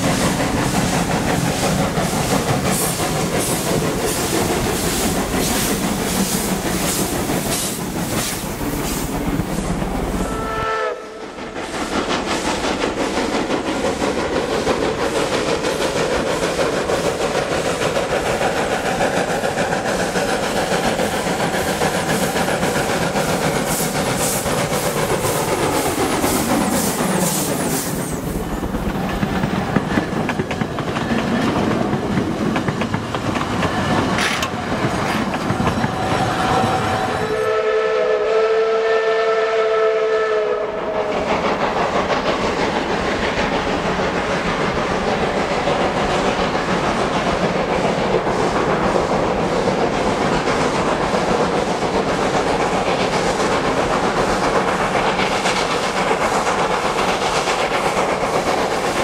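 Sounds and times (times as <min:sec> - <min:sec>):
steam train rushing: 0:00.0 - 0:59.0
steam whistle chord: 0:10.2 - 0:11.3, 0:37.0 - 0:41.0.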